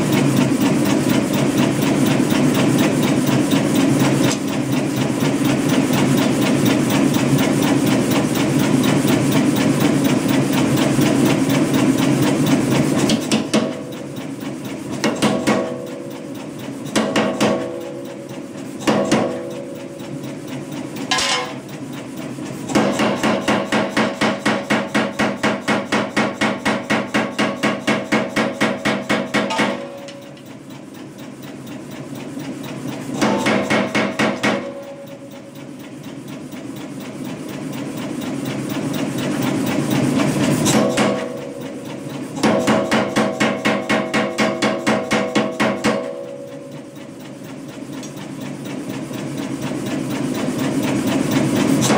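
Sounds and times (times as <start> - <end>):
power hammer striking hot steel: 0.0 - 30.9, 33.1 - 35.5, 40.5 - 47.1.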